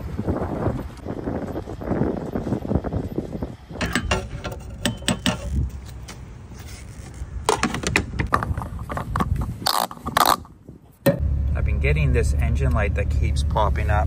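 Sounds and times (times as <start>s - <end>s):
low wind rumble: 0.0s - 14.0s
gas pump nozzle clunking: 3.8s - 5.6s.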